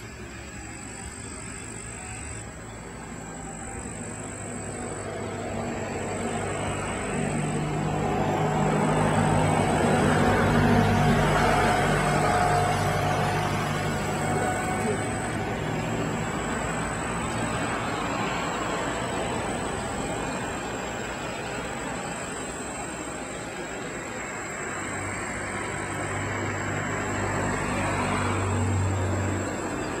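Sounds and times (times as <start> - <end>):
thin high whine: 0.0 - 30.0
vehicle engine hum: 0.0 - 30.0.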